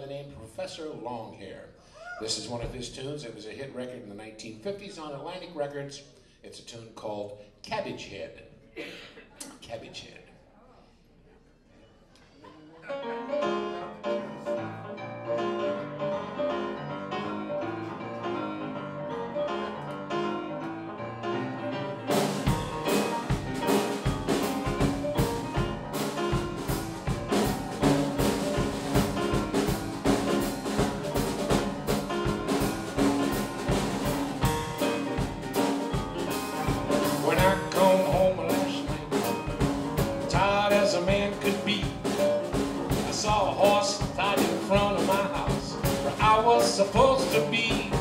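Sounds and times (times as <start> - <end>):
rhythm and blues piano: 12.8 - 48.0
man singing: 37.0 - 39.5, 40.2 - 48.0.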